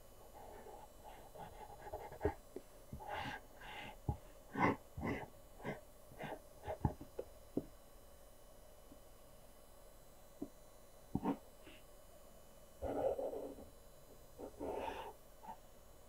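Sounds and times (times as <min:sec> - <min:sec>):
pencil scratching on paper: 0:00.3 - 0:07.0, 0:11.2 - 0:11.8, 0:12.8 - 0:13.6, 0:14.4 - 0:15.6.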